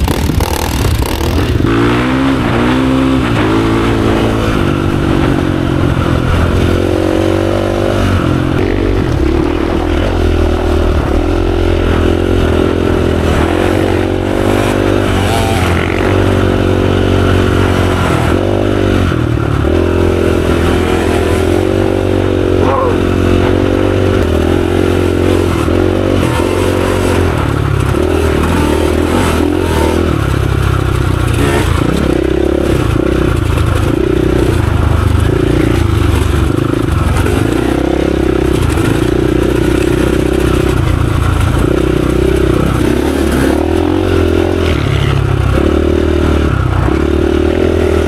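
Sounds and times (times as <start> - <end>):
dirt bike engine revving: 0.0 - 48.0.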